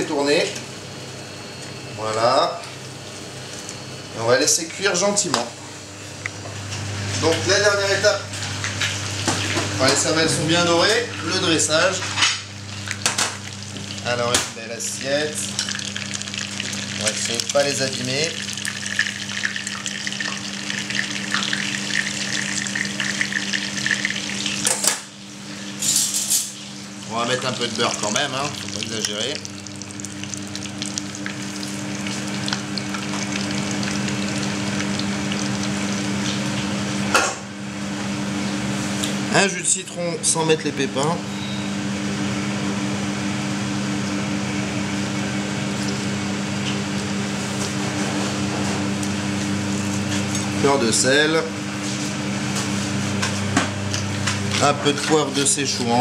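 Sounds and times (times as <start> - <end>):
kitchen ventilation fan humming: 0.0 - 56.0
butter sizzling in a frying pan: 12.6 - 14.2, 15.4 - 24.8, 27.3 - 36.9.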